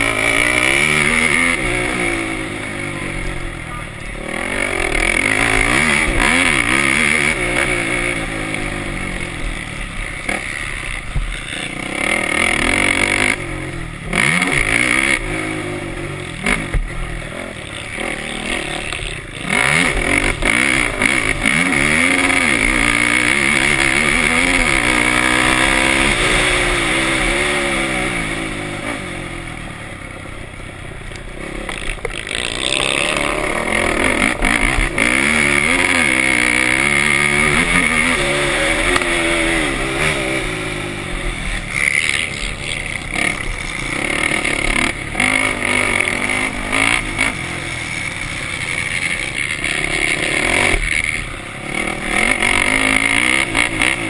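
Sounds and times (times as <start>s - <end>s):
race engine revving: 0.0s - 29.5s, 31.3s - 54.0s.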